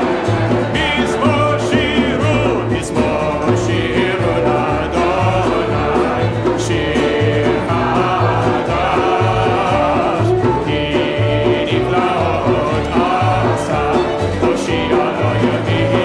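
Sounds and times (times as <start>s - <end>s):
acoustic guitar: 0.0s - 16.0s
congregation singing in unison: 0.0s - 16.0s
low bass notes: 0.0s - 16.0s.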